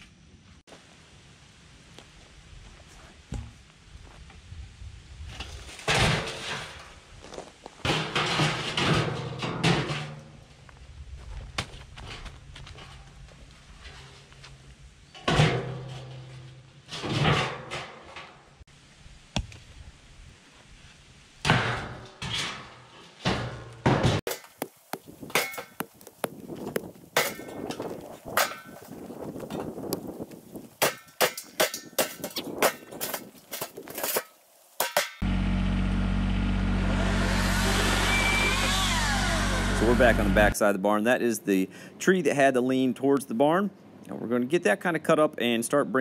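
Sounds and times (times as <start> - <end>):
hatchet chopping wood: 24.3 - 28.8, 30.8 - 33.0
engine running: 35.2 - 40.6.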